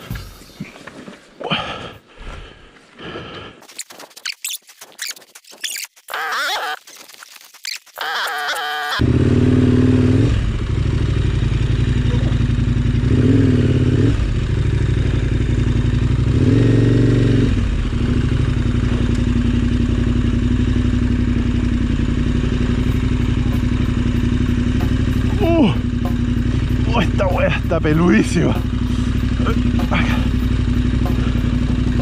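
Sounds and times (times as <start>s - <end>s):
motorcycle engine running: 9.0s - 32.0s
motorcycle throttle blips: 17.6s - 32.0s.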